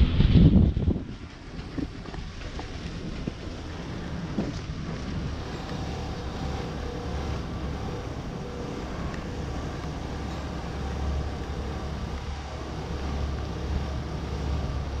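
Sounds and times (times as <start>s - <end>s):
diesel engine humming: 3.3s - 15.0s.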